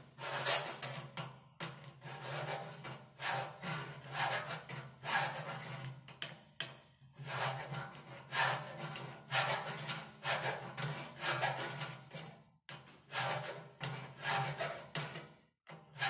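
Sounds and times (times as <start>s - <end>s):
file scraping on steel: 0.2s - 1.1s, 2.0s - 6.0s, 7.2s - 15.2s.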